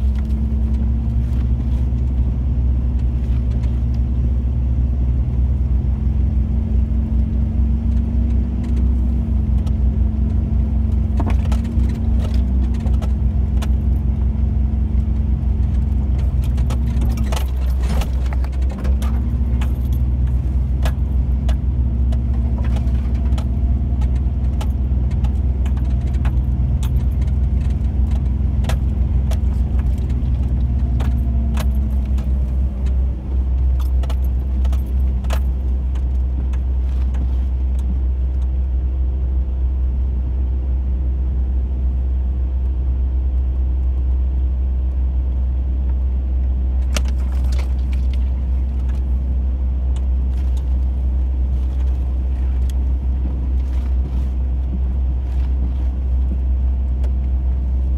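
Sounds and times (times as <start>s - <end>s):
vehicle engine rumbling: 0.0s - 57.9s.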